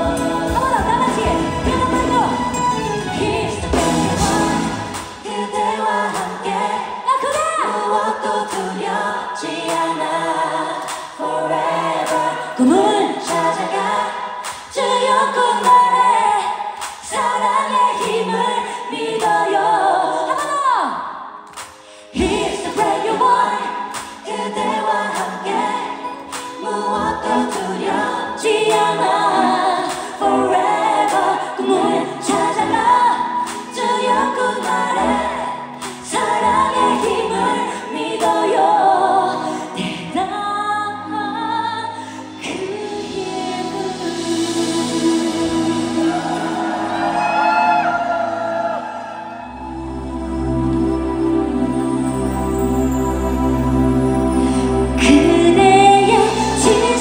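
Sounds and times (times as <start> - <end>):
live pop band with steady beat: 0.0 - 6.9
woman singing: 0.0 - 10.7, 12.1 - 14.1, 14.7 - 21.1, 22.1 - 46.6, 55.0 - 57.0.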